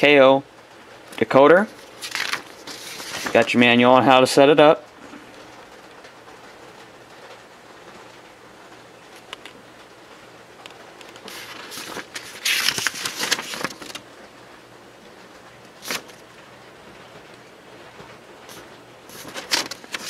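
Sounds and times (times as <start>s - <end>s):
paper pages turning: 1.7s - 3.6s, 11.0s - 14.0s, 15.8s - 16.2s, 18.5s - 20.0s.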